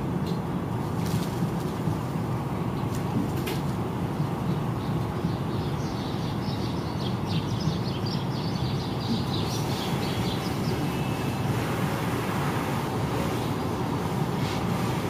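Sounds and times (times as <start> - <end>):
train wheels rumbling on rails: 9.1 - 15.0.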